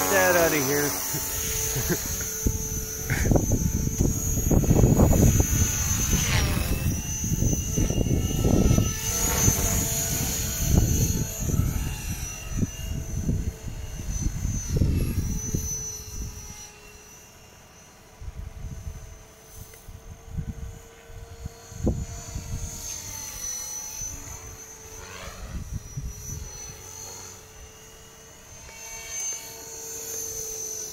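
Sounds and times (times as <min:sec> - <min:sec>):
model helicopter whine: 0:00.0 - 0:30.9
low rumbling gusts: 0:00.9 - 0:11.9.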